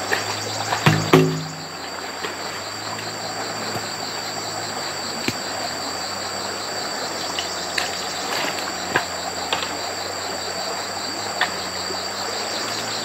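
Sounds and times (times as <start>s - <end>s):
crickets trilling: 0.0s - 13.0s
low steady hum: 0.5s - 7.0s.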